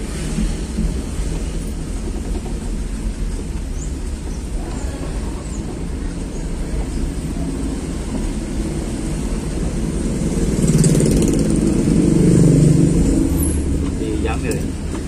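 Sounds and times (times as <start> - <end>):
motorcycle engine passing: 10.3 - 13.8.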